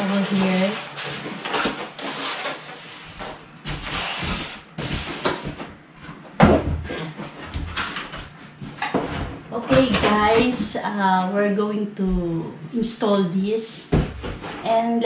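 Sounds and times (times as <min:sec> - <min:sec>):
plastic packaging rustling: 0:00.0 - 0:06.3.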